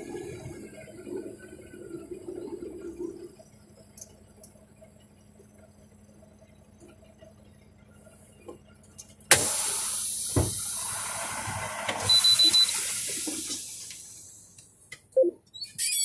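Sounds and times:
air brake hissing: 9.3s - 14.5s.

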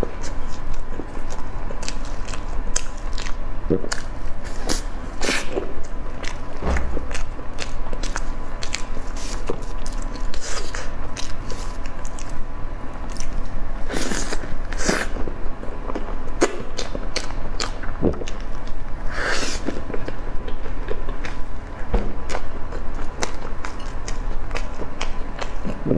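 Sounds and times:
dumpling being bitten and chewed: 0.1s - 15.1s.

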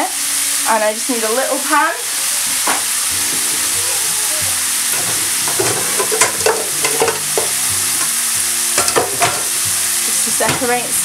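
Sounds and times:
meat sizzling in a frying pan: 0.0s - 11.0s
wooden spoon scraping a pan: 4.9s - 8.2s.

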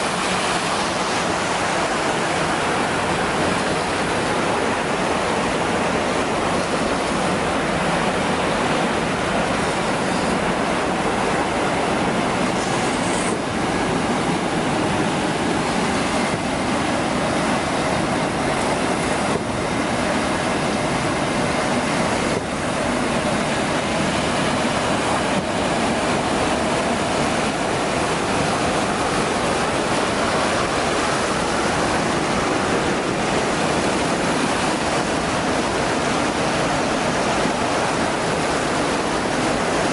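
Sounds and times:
churning aerated water: 0.0s - 39.9s.

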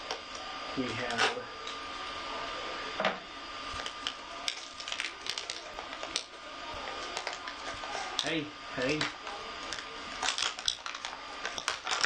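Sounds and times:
plastic wrap crinkling: 3.8s - 8.3s, 8.9s - 12.0s.

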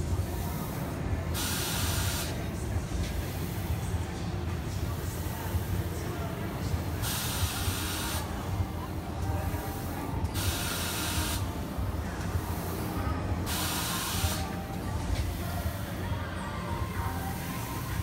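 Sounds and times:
air hissing bursts: 0.5s - 2.4s, 7.0s - 8.4s, 9.5s - 11.6s, 12.4s - 15.7s.

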